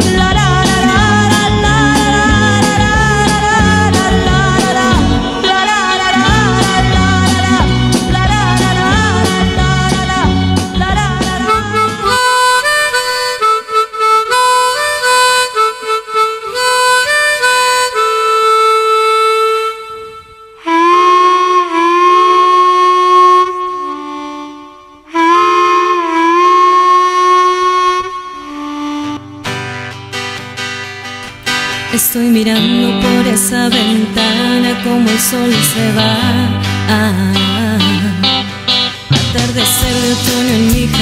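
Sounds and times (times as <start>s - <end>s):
band playing: 0.0s - 21.0s, 32.6s - 41.0s
harmonica playing: 0.0s - 32.0s
guitar accompaniment: 0.0s - 41.0s.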